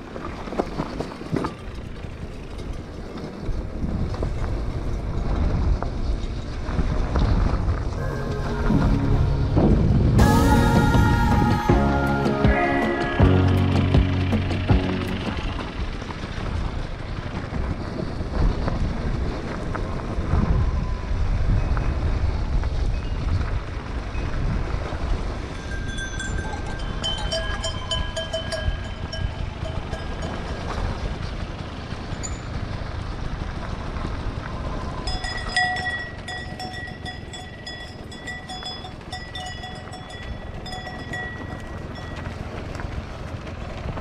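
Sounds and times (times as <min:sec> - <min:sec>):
wind rumble: 0:00.0 - 0:44.0
motorcycle engine running: 0:08.4 - 0:17.9
cowbells ringing: 0:25.5 - 0:30.9, 0:35.1 - 0:42.4.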